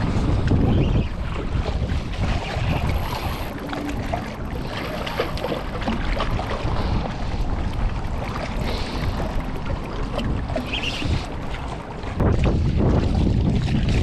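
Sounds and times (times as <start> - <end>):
water lapping: 0.0 - 14.0
wind buffeting microphone: 0.0 - 14.0
small knocks and splashes: 1.4 - 6.9.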